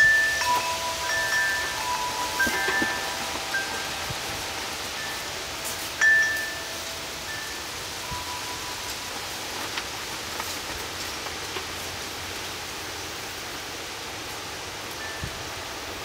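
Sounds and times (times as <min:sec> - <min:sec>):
wind chime note: 0:00.0 - 0:09.0
steady rain falling: 0:00.0 - 0:16.0.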